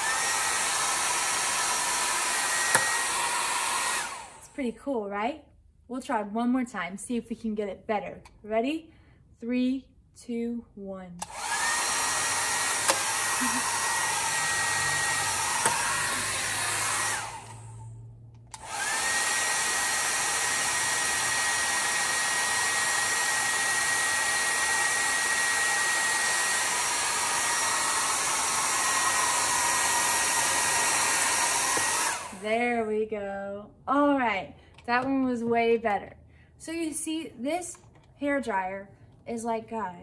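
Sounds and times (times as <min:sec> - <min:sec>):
hair dryer blowing: 0:00.0 - 0:04.6, 0:11.2 - 0:33.0.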